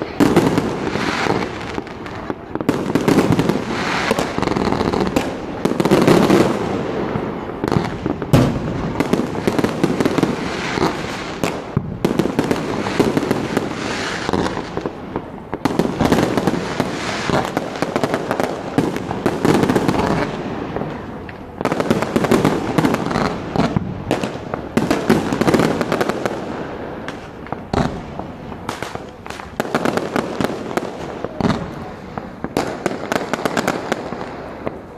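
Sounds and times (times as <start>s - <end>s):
fireworks bangs and crackling: 0.0s - 34.9s.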